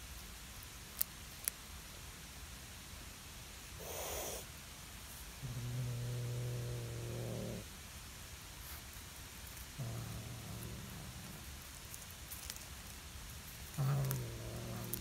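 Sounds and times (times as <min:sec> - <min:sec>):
cat hissing: 0:03.8 - 0:04.5, 0:13.7 - 0:15.0
cat growling: 0:05.4 - 0:07.7, 0:09.7 - 0:11.7, 0:13.6 - 0:15.0.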